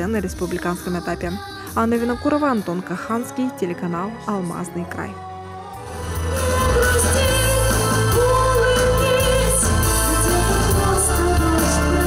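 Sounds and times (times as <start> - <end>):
boy singing pop song: 0.0 - 3.7, 5.1 - 12.0
backing track with bass: 5.8 - 12.0.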